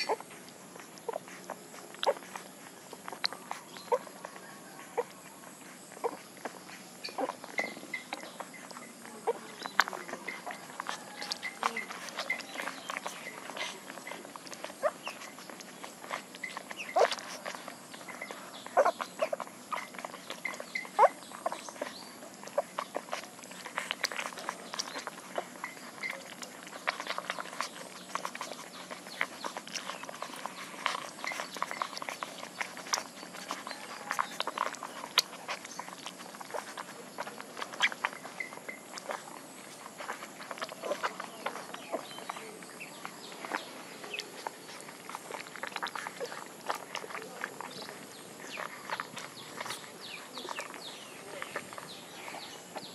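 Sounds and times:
puppy squeaks: 0.0s - 0.4s, 1.0s - 39.4s
puppies suckling: 0.0s - 52.9s.

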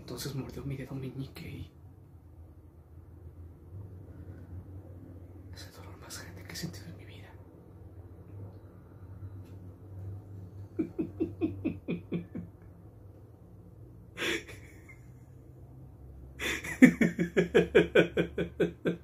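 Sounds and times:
man laughing menacingly: 10.6s - 12.6s, 14.2s - 15.2s, 16.4s - 19.0s.

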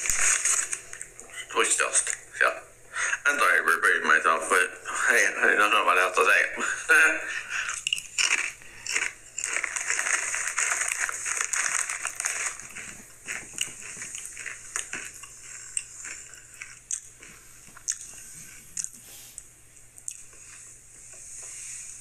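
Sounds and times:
person crunching and chewing chips: 0.0s - 1.4s, 7.3s - 19.0s.

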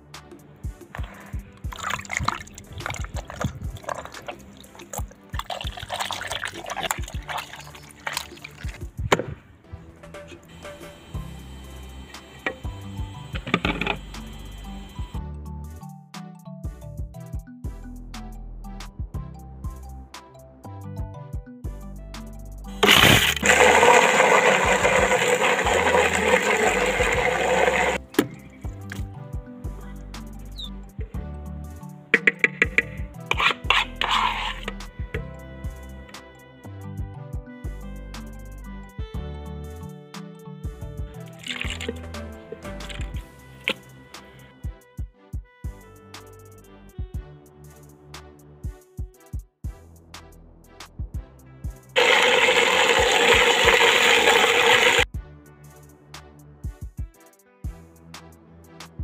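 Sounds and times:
background music: 0.0s - 59.0s
hands kneading wet dough: 1.0s - 9.0s
wet squelches and splashes: 1.0s - 9.0s, 41.4s - 43.8s
food processor kneading dough: 22.8s - 28.0s, 52.0s - 55.0s.

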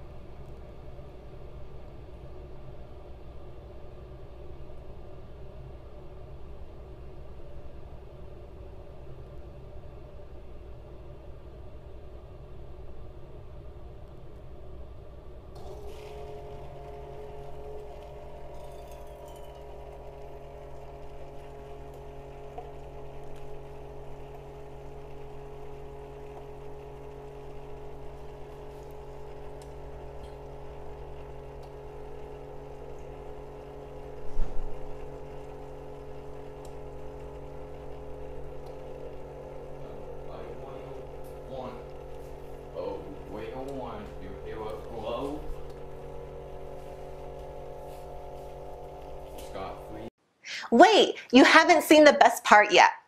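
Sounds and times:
coffee maker pump hum: 0.0s - 50.1s
coffee streaming into metal mug: 15.6s - 50.1s.

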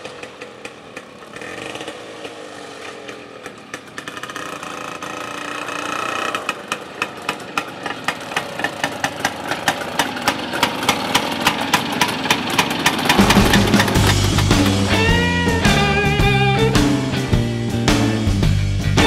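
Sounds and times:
two-stroke motorcycle engines popping: 0.0s - 19.0s
music: 13.2s - 19.0s.

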